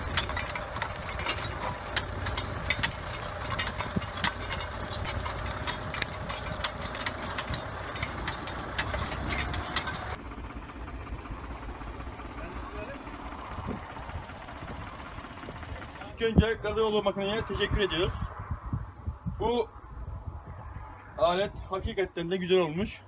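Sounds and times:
sharp clicks and knocks: 0:00.0 - 0:10.2
tractor engine running: 0:00.0 - 0:19.2.

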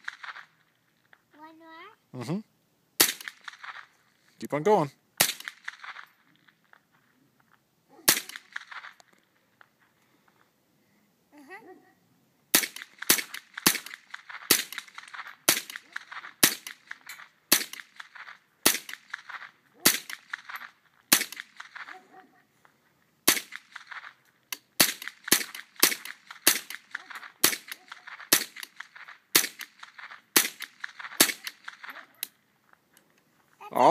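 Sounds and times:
rifle single shots: 0:00.0 - 0:00.6, 0:03.0 - 0:03.9, 0:05.2 - 0:06.8, 0:07.9 - 0:09.1, 0:12.5 - 0:22.1, 0:23.2 - 0:32.4.

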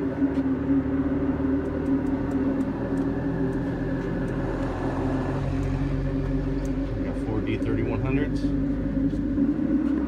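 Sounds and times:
mechanical hum: 0:00.0 - 0:10.0.

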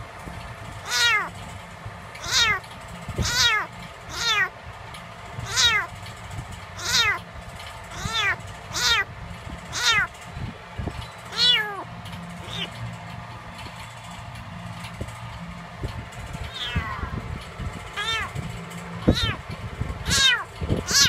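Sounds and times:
kitten meowing: 0:00.8 - 0:01.3, 0:02.2 - 0:02.6, 0:03.2 - 0:04.5, 0:05.4 - 0:05.9, 0:06.8 - 0:07.2, 0:07.9 - 0:09.1, 0:09.7 - 0:10.1, 0:11.3 - 0:12.8, 0:16.5 - 0:17.2, 0:17.9 - 0:18.4, 0:19.0 - 0:19.4, 0:20.0 - 0:21.0.

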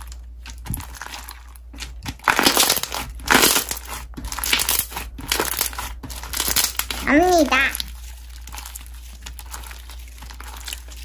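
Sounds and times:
slime crackling and popping: 0:00.0 - 0:11.0.

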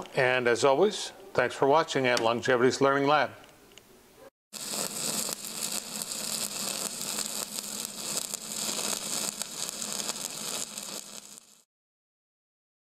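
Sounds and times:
crackling hiss: 0:04.6 - 0:11.7.

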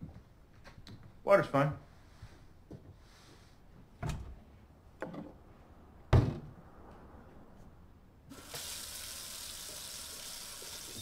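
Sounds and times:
water running from tap: 0:08.3 - 0:11.0.

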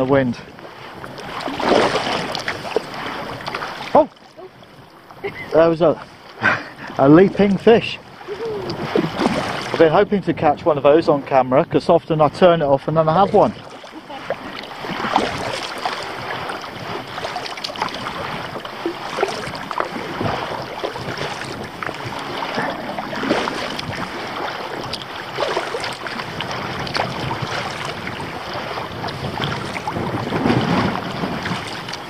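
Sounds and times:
paddle splashes: 0:00.0 - 0:10.1, 0:12.3 - 0:32.0
waves against hull: 0:00.0 - 0:32.0
wind noise on microphone: 0:07.4 - 0:10.9, 0:13.2 - 0:32.0.

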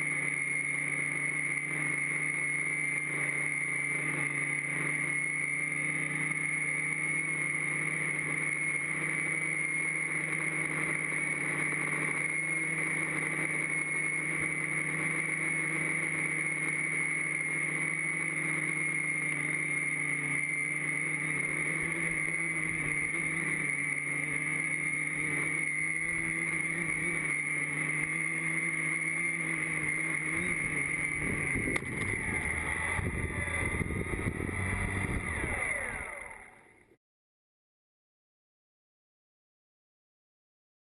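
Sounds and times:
drone propellers buzzing: 0:00.0 - 0:36.9
motors spinning down: 0:00.0 - 0:36.9
drone touching down click: 0:21.3 - 0:36.7.

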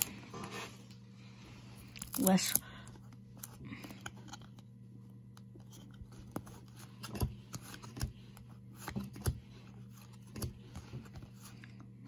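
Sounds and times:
low steady hum: 0:00.0 - 0:12.0
cards scraping: 0:03.1 - 0:11.9.

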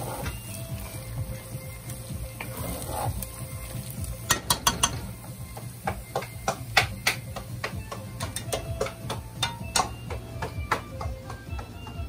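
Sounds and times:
metal spoon scraping frying pan: 0:02.4 - 0:03.5.

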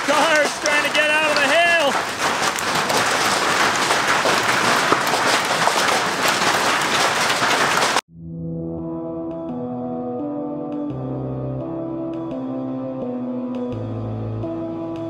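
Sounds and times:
hail and heavy rain pelting: 0:00.0 - 0:08.0
music: 0:08.1 - 0:15.0.

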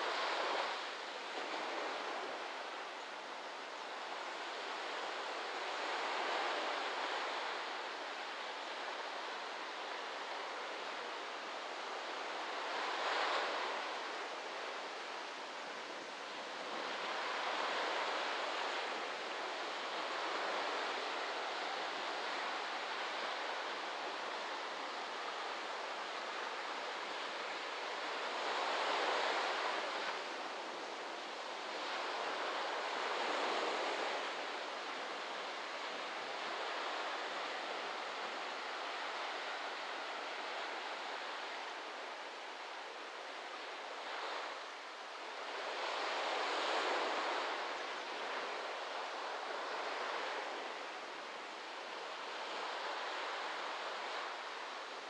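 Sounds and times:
waves breaking on a beach: 0:00.0 - 0:55.0.

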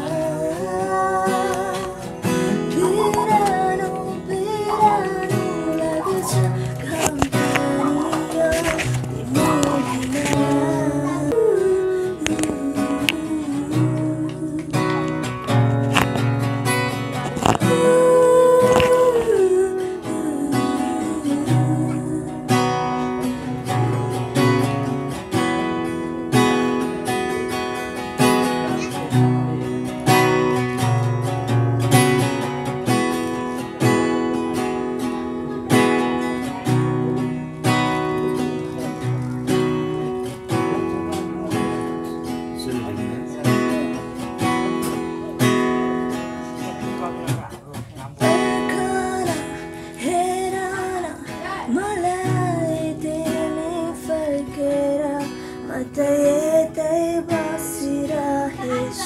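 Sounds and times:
acoustic guitar strumming: 0:00.0 - 0:59.0.

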